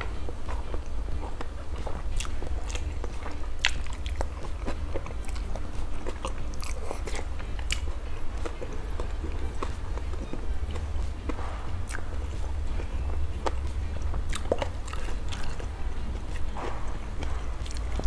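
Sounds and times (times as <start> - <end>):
low hum: 0.0 - 18.0
noodles being chewed and slurped: 0.0 - 18.0
wet mouth clicks: 10.7 - 18.0.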